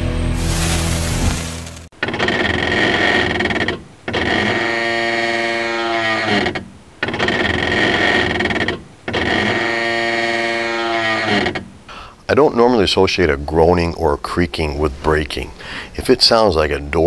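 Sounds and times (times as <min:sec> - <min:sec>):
creaking groan: 0:02.0 - 0:11.8.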